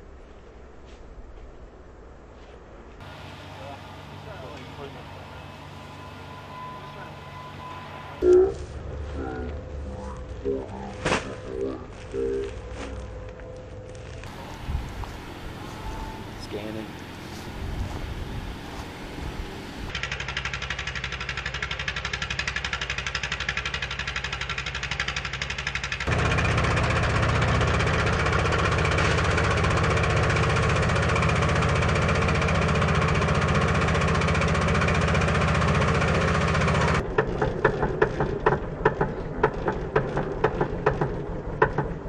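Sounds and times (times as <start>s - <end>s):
pump engine running: 14.3s - 41.8s.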